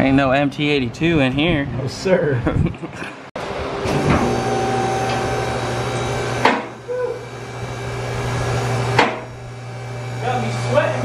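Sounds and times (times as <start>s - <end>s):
machine hum: 3.4s - 11.0s
sharp knocks: 6.4s - 6.8s, 8.9s - 9.3s.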